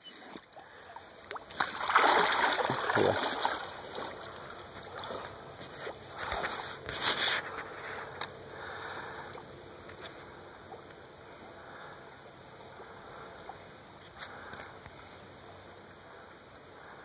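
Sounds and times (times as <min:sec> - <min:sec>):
dog swimming splashing water: 0:00.4 - 0:06.6.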